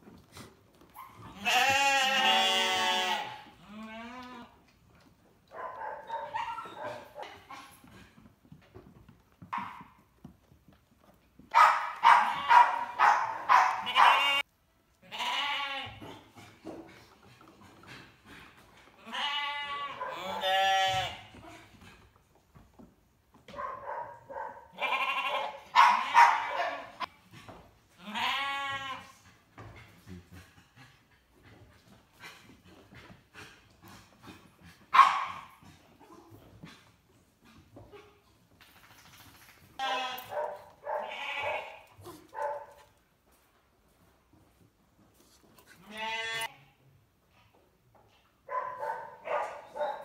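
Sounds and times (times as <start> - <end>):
sheep bleating: 1.3 - 4.6, 13.5 - 14.4, 15.0 - 16.0, 19.0 - 21.4, 24.7 - 26.4, 28.0 - 29.1, 39.8 - 41.9, 45.8 - 46.7.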